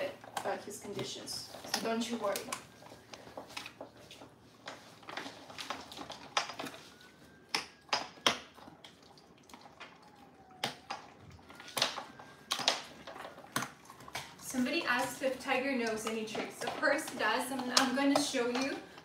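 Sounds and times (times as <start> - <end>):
dog chewing crunchy treat: 7.8 - 19.0.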